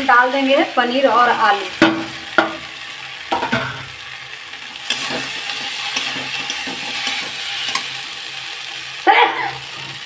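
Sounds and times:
food sizzling in hot oil: 0:00.0 - 0:10.0
spatula stirring and scraping: 0:04.7 - 0:08.2.

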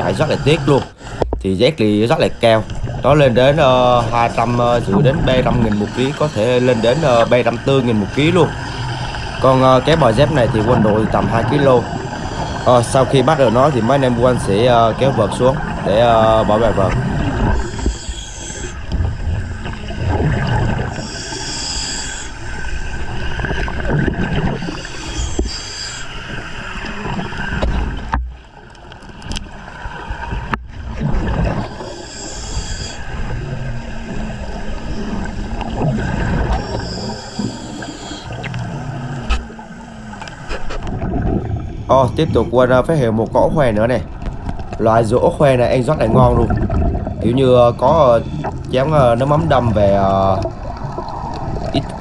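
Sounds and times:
steady underwater rumble: 0:00.0 - 0:52.0
diver exhaling bubbles underwater: 0:30.9 - 0:42.6, 0:45.1 - 0:52.0.

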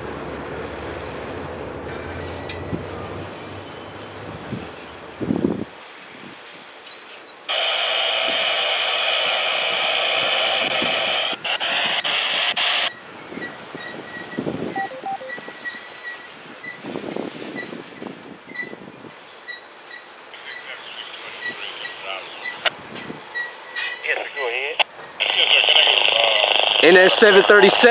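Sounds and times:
hissy radio scanner transmission: 0:07.5 - 0:13.0, 0:20.3 - 0:22.8, 0:24.0 - 0:27.9.

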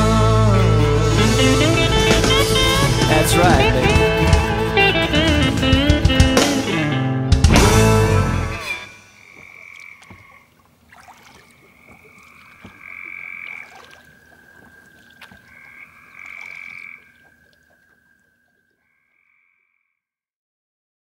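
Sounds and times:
electric guitar music: 0:00.0 - 0:09.0
frogs calling: 0:08.9 - 0:20.0.

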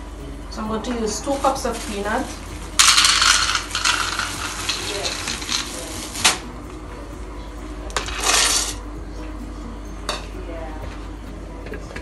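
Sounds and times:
peanuts rattling into blender jar: 0:02.8 - 0:05.8.

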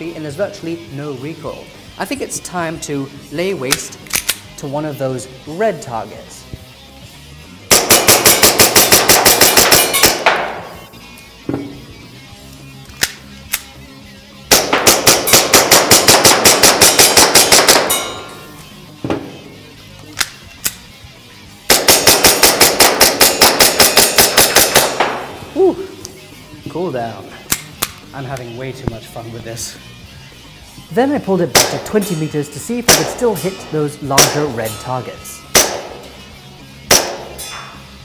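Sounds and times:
airsoft pistol rapid shots: 0:07.7 - 0:10.6, 0:14.5 - 0:18.0, 0:21.7 - 0:25.3, 0:31.5 - 0:31.9, 0:32.9 - 0:33.2, 0:35.5 - 0:36.0, 0:36.9 - 0:37.3.

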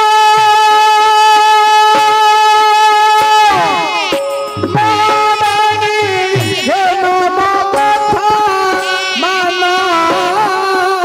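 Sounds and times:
drum beating: 0:01.9 - 0:11.0
ornamented folk melody: 0:03.2 - 0:11.0.

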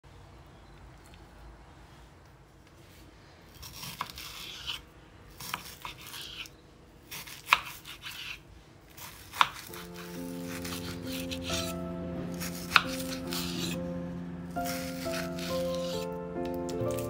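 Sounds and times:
knife slicing raw meat: 0:09.0 - 0:11.8, 0:14.6 - 0:16.1.

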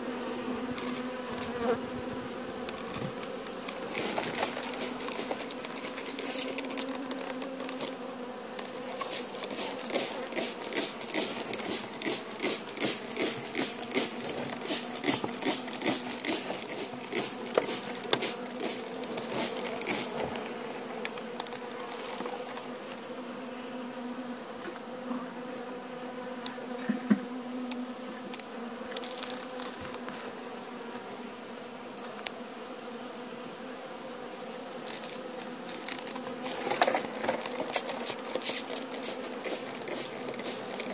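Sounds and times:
honeybees humming: 0:00.0 - 0:40.9
sharp ticks: 0:09.4 - 0:20.0.

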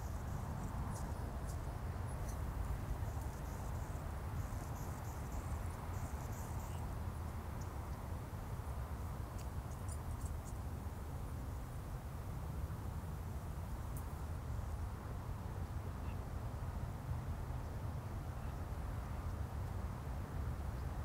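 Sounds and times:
faint high insect chirping: 0:00.0 - 0:14.9.

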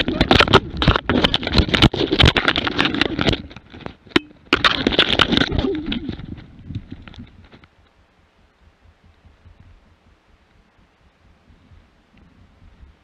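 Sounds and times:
sharp clicks and knocks: 0:00.0 - 0:07.7
brush and twigs crackling: 0:00.0 - 0:10.8
animals scuffling: 0:00.0 - 0:13.0.

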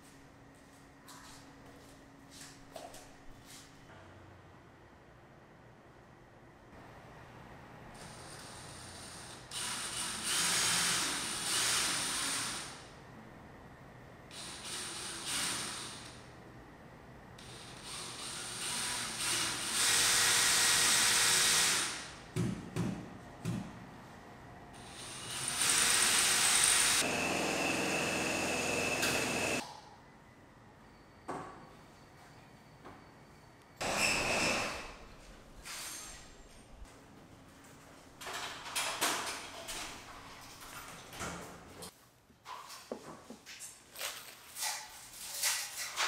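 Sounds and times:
cordless drill drilling into wall: 0:09.5 - 0:12.8, 0:17.9 - 0:22.1, 0:24.9 - 0:29.6.

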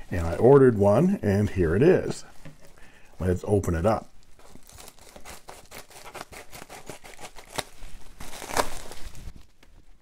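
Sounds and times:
plastic crinkling: 0:04.1 - 0:09.9.

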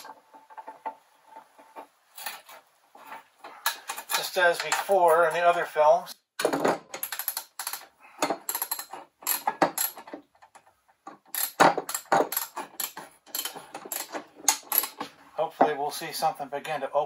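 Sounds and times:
socket ratchet clicking: 0:07.0 - 0:10.1, 0:11.3 - 0:15.0.

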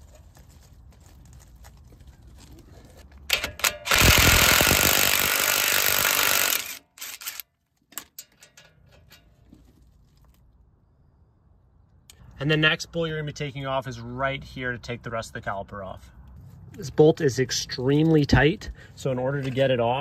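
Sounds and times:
impact driver hammering: 0:03.3 - 0:07.4.

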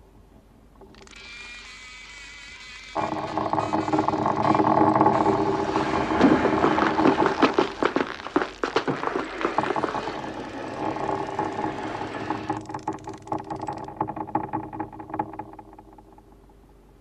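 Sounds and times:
scraping clatters and clicks: 0:03.0 - 0:16.4.

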